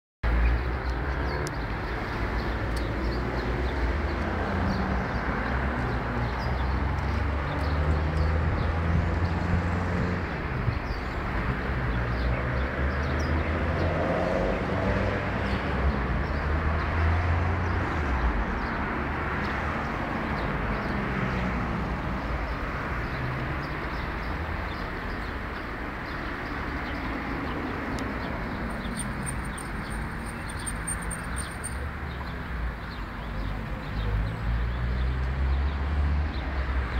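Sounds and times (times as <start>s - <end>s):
birds chirping: 22.4s - 35.7s.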